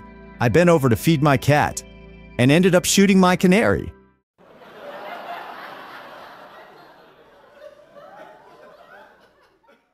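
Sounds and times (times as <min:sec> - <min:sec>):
laugh track audience laughter: 0:04.4 - 0:09.9.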